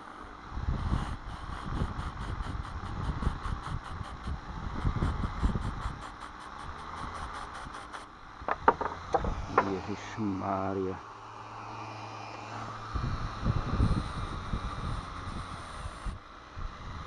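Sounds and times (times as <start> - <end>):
low rumbling: 8.2 - 10.1
sharp knocks: 8.5 - 9.8.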